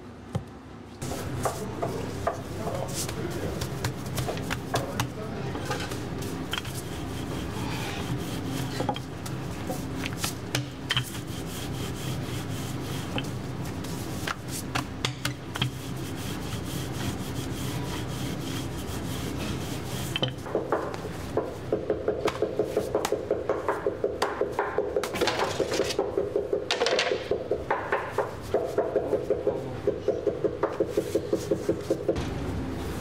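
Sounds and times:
rolling pin rubbing on dough: 1.0 - 21.7, 27.6 - 32.2.

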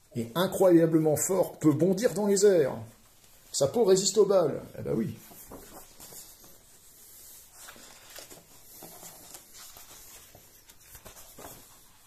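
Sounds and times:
paper pages rustling: 5.2 - 12.0.

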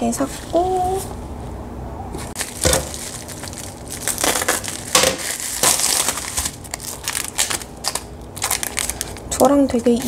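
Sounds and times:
bubble wrap crinkling: 2.2 - 10.0.

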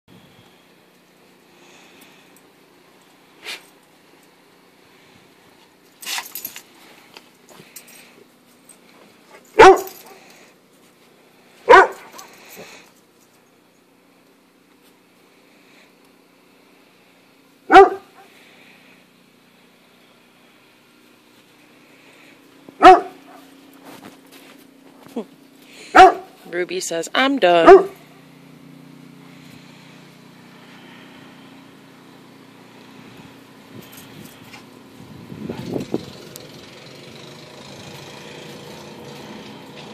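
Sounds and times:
low mechanical hum: 0.1 - 39.9
dog barking: 9.6 - 10.2, 11.7 - 12.3, 17.7 - 18.3, 22.8 - 23.5, 25.9 - 26.4, 27.6 - 28.0.

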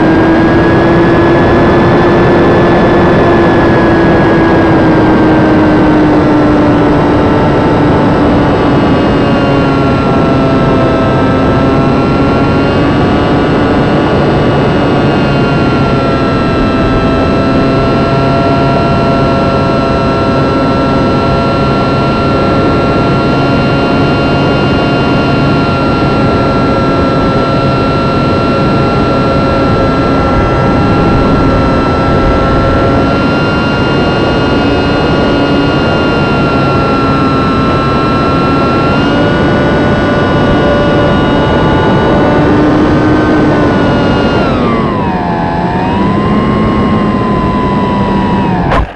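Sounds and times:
electric motor whine: 0.0 - 48.9
rushing air noise: 48.4 - 48.9.

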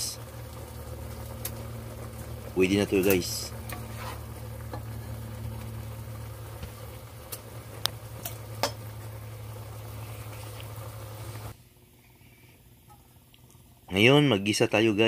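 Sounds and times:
pot of water boiling: 0.0 - 11.9
low hum: 0.0 - 13.3.

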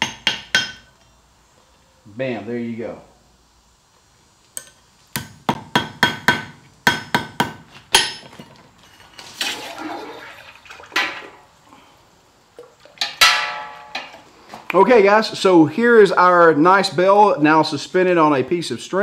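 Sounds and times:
hammer tapping on anvil: 0.0 - 1.1
loud ringing metal clang: 13.2 - 14.2.

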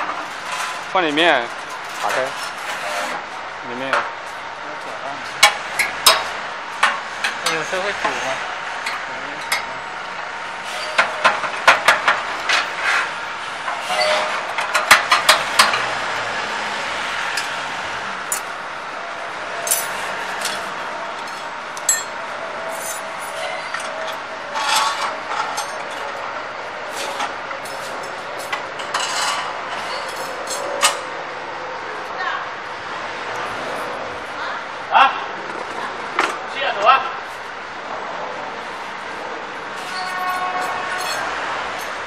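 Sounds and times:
steady background noise: 0.0 - 42.0
steel rods clinking: 18.3 - 18.6, 19.6 - 26.2, 39.8 - 42.0.

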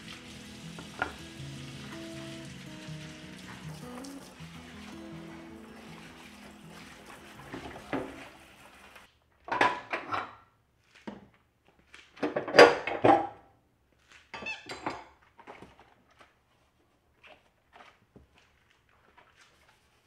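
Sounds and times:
running water spray: 0.0 - 9.1.

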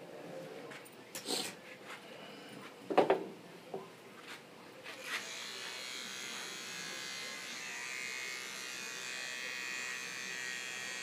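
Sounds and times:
electric hair clippers running: 5.1 - 11.0.

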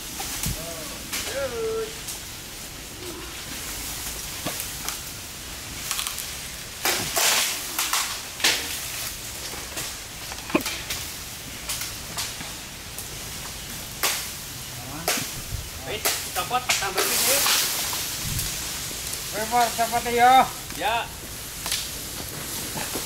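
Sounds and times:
sharp snaps of branches: 0.0 - 2.7, 3.4 - 23.0
branches and leaves rustling: 0.0 - 23.0.

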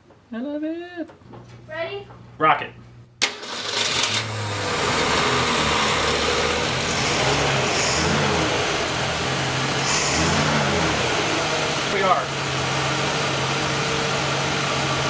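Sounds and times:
car engine starting and running: 3.2 - 15.0.

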